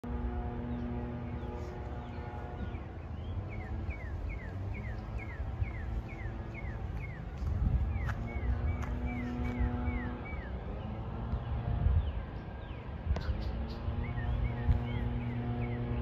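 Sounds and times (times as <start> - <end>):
low rumble: 0.0 - 16.0
songbird whistling: 2.7 - 10.6, 12.7 - 15.8.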